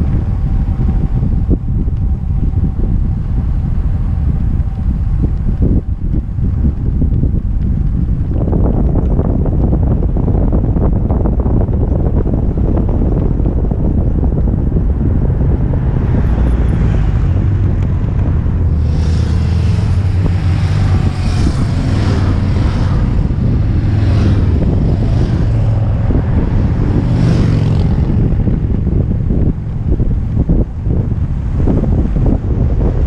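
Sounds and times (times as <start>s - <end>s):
wind buffeting microphone: 0.0s - 33.0s
motorcycles passing: 11.8s - 33.0s.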